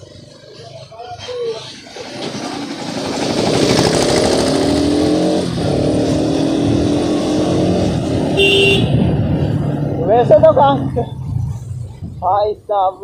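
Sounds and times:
motorcycle engine accelerating: 0:01.8 - 0:12.2
wind rushing past microphone: 0:03.0 - 0:12.7.

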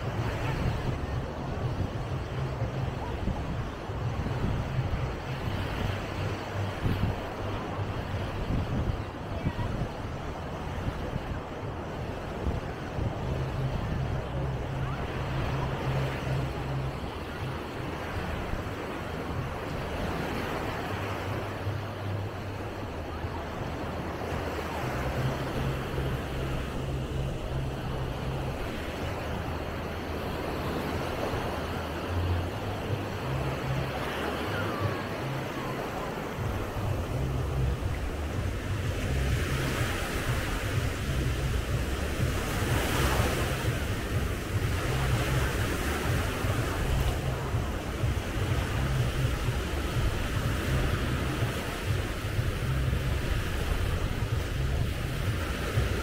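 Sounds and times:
waves washing on beach: 0:00.0 - 0:56.0
wind buffeting microphone: 0:00.0 - 0:56.0
low rumble: 0:36.4 - 0:56.0.

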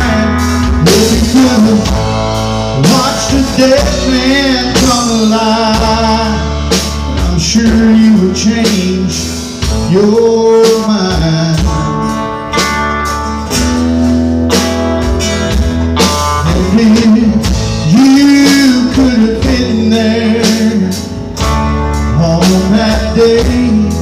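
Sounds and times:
country band playing: 0:00.0 - 0:24.0
sliding guitar lead line: 0:00.0 - 0:24.0.

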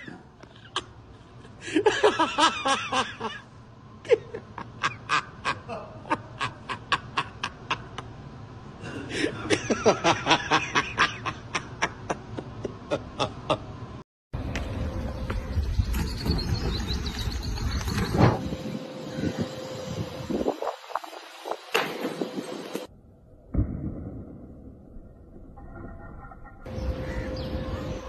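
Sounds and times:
person laughing hard: 0:01.5 - 0:08.1, 0:08.8 - 0:13.8.

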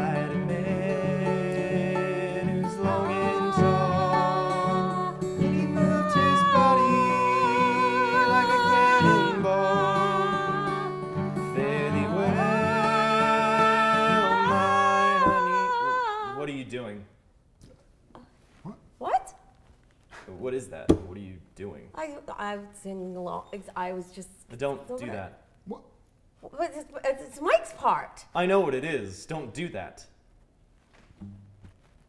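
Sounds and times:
acoustic guitar strumming: 0:00.0 - 0:16.3
man singing folk song: 0:00.0 - 0:16.4.

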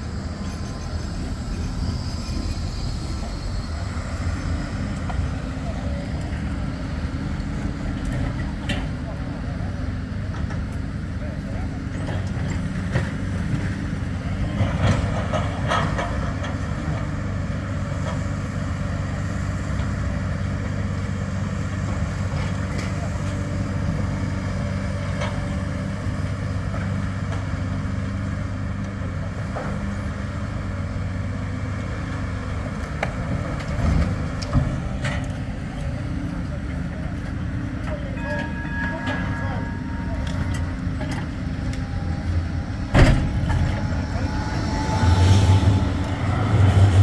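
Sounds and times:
excavator diesel engines rumbling: 0:00.0 - 0:47.0
knocks and clanks: 0:42.8 - 0:44.3.

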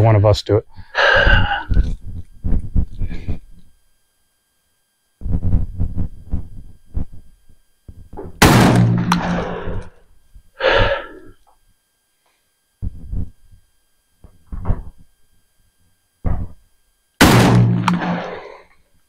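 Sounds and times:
shotgun shot with ringing tail: 0:08.4 - 0:09.9, 0:17.2 - 0:18.6.

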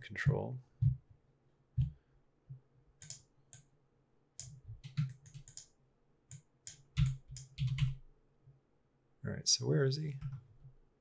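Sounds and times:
mouse and keyboard clicks: 0:03.0 - 0:03.7, 0:04.4 - 0:05.7.

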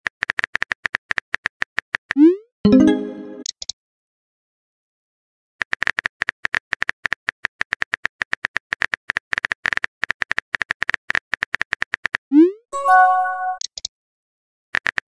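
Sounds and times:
rapid keyboard tap clicks: 0:05.6 - 0:12.2, 0:14.8 - 0:15.0.

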